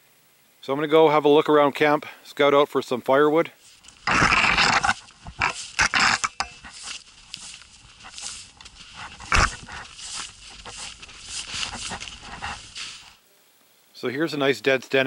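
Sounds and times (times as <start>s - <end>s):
footsteps crunching in snow: 3.6s - 13.2s
snow pants rustling: 3.6s - 13.2s.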